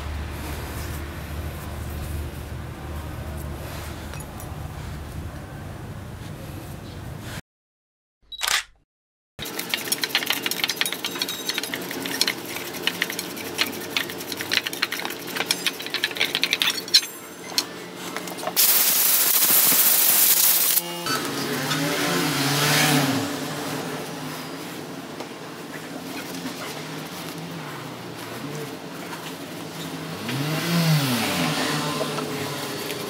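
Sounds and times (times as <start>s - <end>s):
low wavering hum: 0.0s - 6.2s
brush scrubbing in metal bowl: 9.4s - 17.2s
rough rubbing: 9.4s - 17.4s
loud even hiss: 18.6s - 20.8s.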